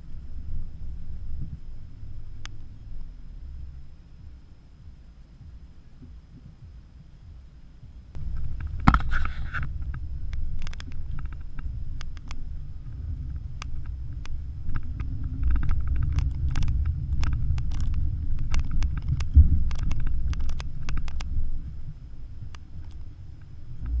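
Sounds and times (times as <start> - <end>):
car rumbling on dirt track: 8.1 - 24.0.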